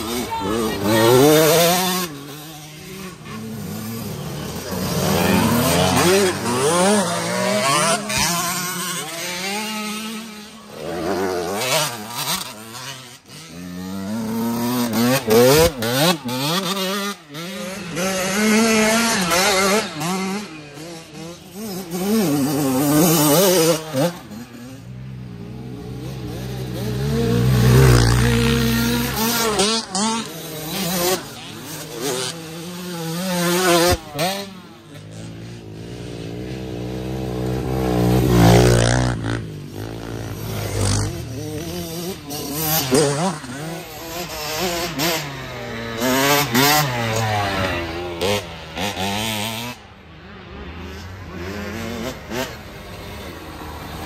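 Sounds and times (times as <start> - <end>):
dirt bike engines revving: 0.0 - 54.0.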